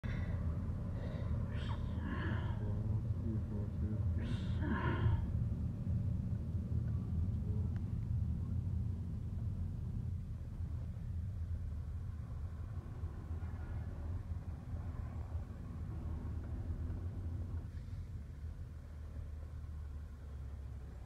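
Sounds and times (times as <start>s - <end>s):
car driving rumble: 0.0s - 21.0s
person breathy vocal sounds: 1.5s - 2.7s, 4.2s - 5.3s.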